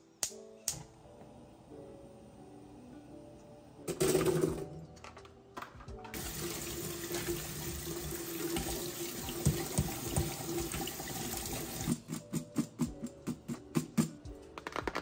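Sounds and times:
kitchen tap running into sink: 0:06.1 - 0:12.0.

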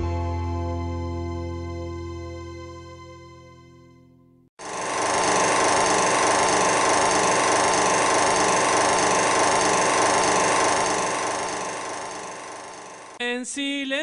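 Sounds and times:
loud harsh buzzing: 0:04.6 - 0:13.2.

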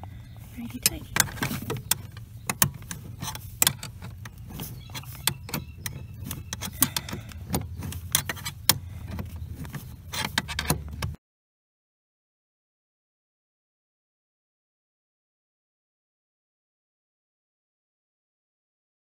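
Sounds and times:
low steady hum: 0:00.0 - 0:11.2
wrenches clicking against metal: 0:00.0 - 0:11.2.

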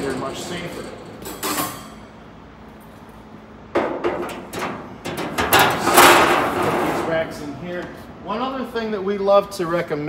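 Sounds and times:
metal rack clattering: 0:03.8 - 0:07.3.

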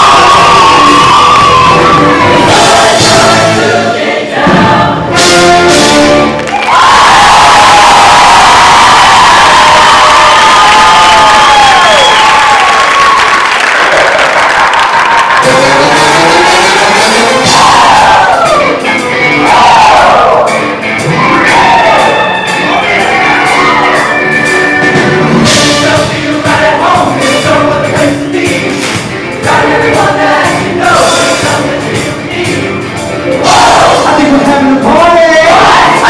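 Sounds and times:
instrumental accompaniment: 0:00.0 - 0:06.8, 0:15.4 - 0:36.0
choir singing: 0:00.0 - 0:08.3, 0:15.4 - 0:20.6, 0:21.2 - 0:36.0.

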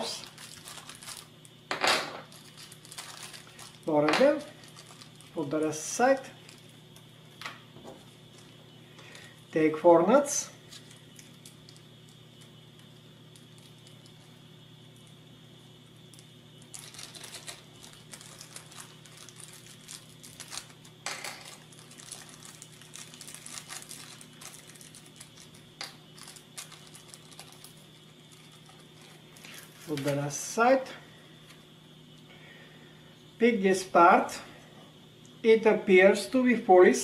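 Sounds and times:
plastic bag crinkling: 0:00.0 - 0:01.6, 0:02.2 - 0:06.8, 0:10.7 - 0:12.4, 0:16.1 - 0:30.1.

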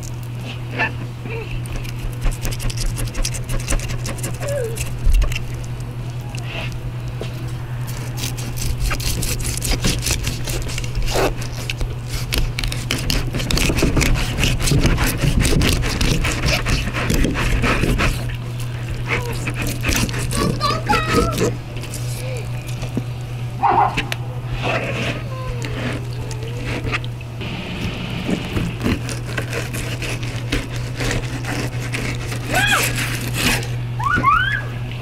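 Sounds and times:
steady low hum: 0:00.0 - 0:35.0
knife cutting into fish: 0:01.7 - 0:05.5, 0:07.9 - 0:18.3, 0:18.9 - 0:22.1, 0:28.3 - 0:33.8
knife scraping fish scales: 0:01.7 - 0:05.6, 0:07.9 - 0:22.9, 0:24.5 - 0:27.1, 0:28.4 - 0:33.8.

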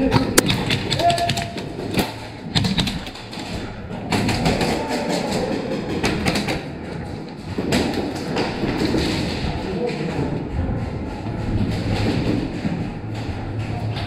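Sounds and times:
footsteps: 0:00.0 - 0:14.0
sharp knocks: 0:00.1 - 0:06.7.

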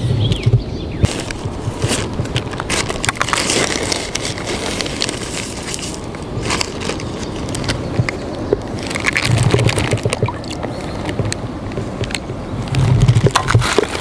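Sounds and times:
plastic bag crinkling: 0:01.1 - 0:10.8.

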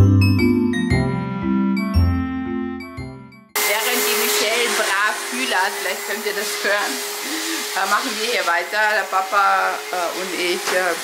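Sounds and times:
air-blowing motor rushing hum: 0:03.6 - 0:11.0.

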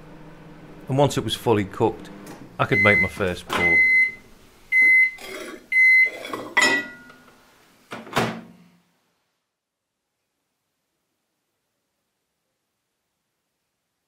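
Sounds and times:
microwave oven beeps: 0:02.6 - 0:07.2.

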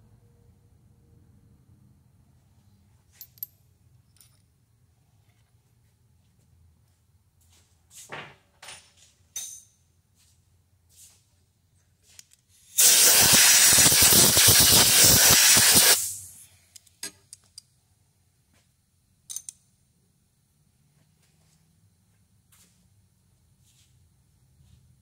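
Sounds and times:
compressed air blasting: 0:12.7 - 0:16.4.

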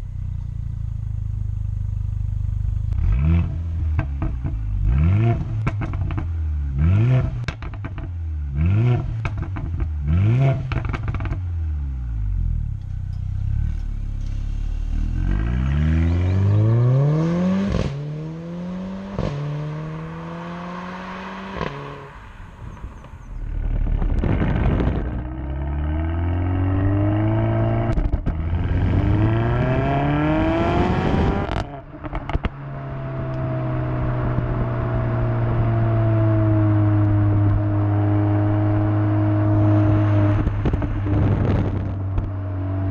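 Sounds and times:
car engine revving: 0:02.5 - 0:42.9
car accelerating through upshifts: 0:02.9 - 0:12.0, 0:15.0 - 0:42.9
exhaust crackles: 0:09.0 - 0:42.9.

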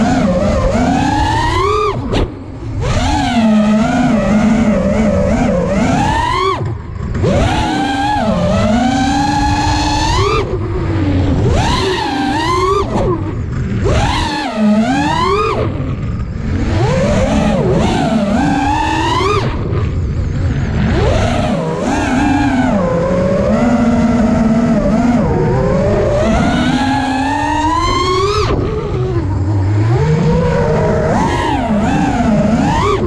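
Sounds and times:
quadcopter motors whining: 0:00.0 - 0:33.0.

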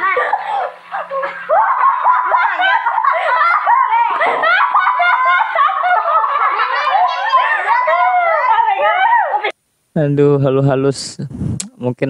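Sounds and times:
high-pitched laughter: 0:00.0 - 0:09.5.

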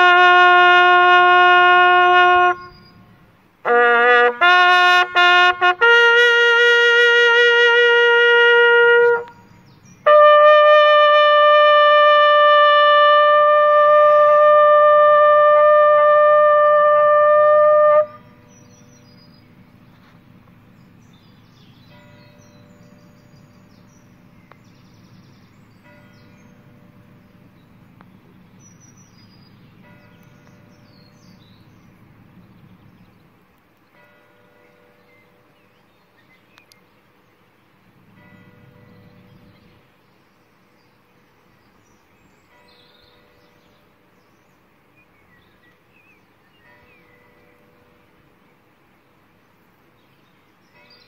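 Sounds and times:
faint background hiss: 0:00.0 - 0:51.0
steady low rumble: 0:18.0 - 0:33.8
small birds chirping: 0:18.2 - 0:51.0.

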